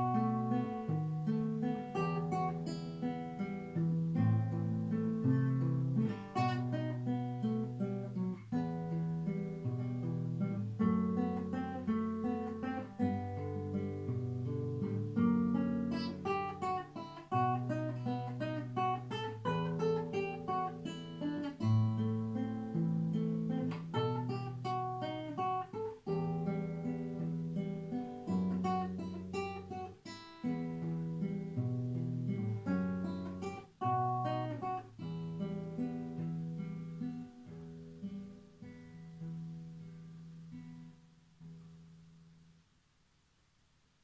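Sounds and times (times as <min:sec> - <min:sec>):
fingerpicked classical guitar: 0:00.0 - 0:43.3.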